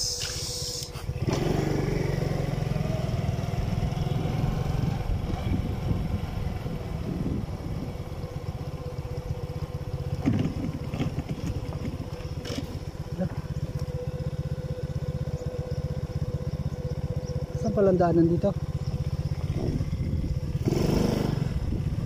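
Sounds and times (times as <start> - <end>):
motorcycle engine running: 0.0 - 22.0
wind and road noise: 0.0 - 22.0.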